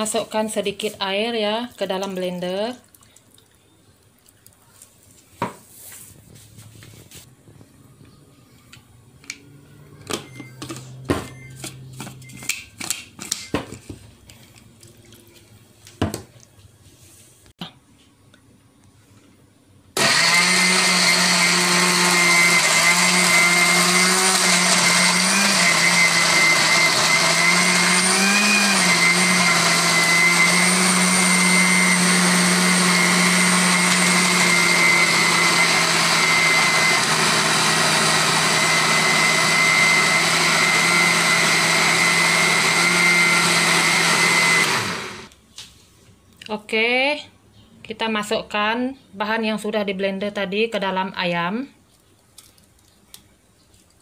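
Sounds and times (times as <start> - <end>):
blender motor running: 20.0 - 45.3.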